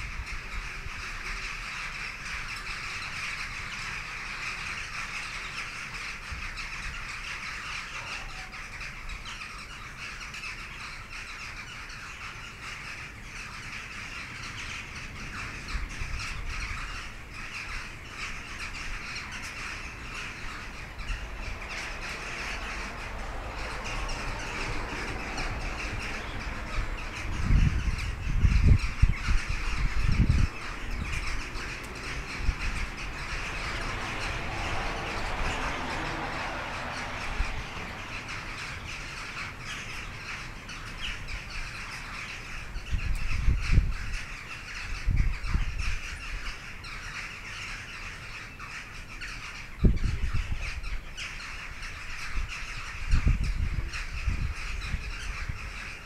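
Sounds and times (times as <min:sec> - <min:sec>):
jackdaw flock calling: 0:00.0 - 0:56.0
low rumbling buffets: 0:15.0 - 0:46.4.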